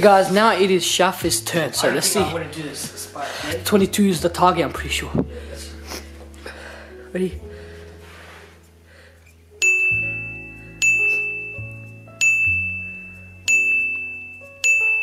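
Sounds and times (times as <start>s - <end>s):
soft low bass line: 3.4s - 6.6s
bell-like chime: 9.6s - 15.0s.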